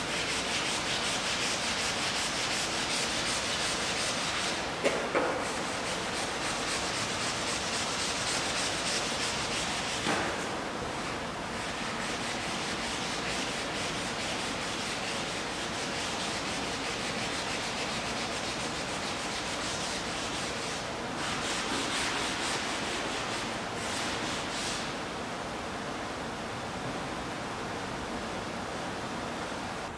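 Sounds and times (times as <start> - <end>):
sandpaper scraping on canvas: 0.0 - 4.7, 5.4 - 10.2, 11.6 - 25.0.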